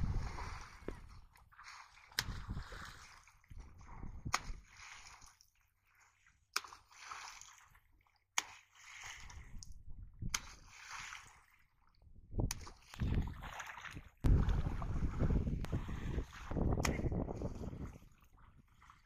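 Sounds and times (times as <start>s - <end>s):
wind buffeting microphone: 0.0s - 1.0s, 2.2s - 2.9s, 12.2s - 13.4s, 14.2s - 18.1s
pole smacking water: 0.0s - 19.0s
water splashing: 0.0s - 19.0s.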